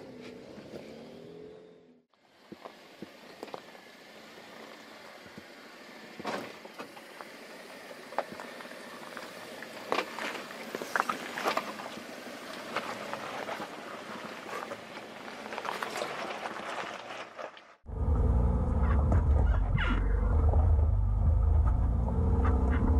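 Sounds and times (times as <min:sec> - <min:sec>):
gravel cracks and pops: 0:08.1 - 0:17.8
tyres crunching over rock: 0:08.1 - 0:17.8.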